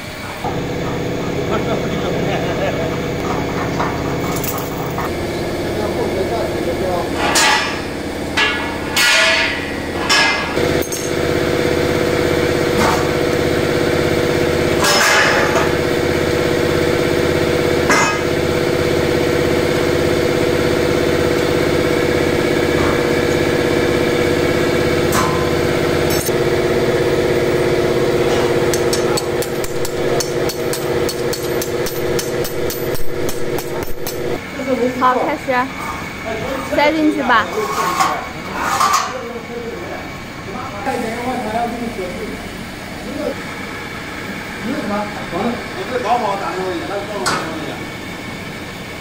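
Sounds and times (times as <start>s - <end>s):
steady mechanical hum: 0.0s - 49.0s
sharp metallic knocks: 17.9s - 18.5s, 28.3s - 34.4s.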